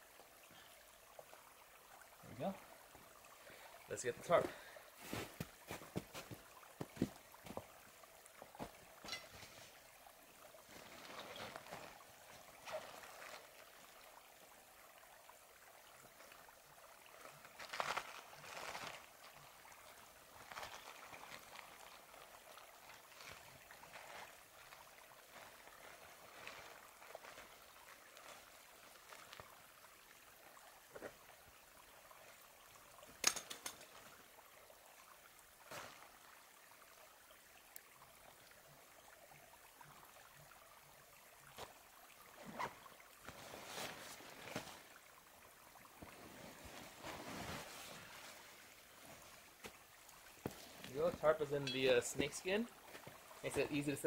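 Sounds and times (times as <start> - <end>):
faint steady hiss: 0.0 - 54.0
gear rustling in backpack: 42.4 - 44.9, 46.1 - 49.4.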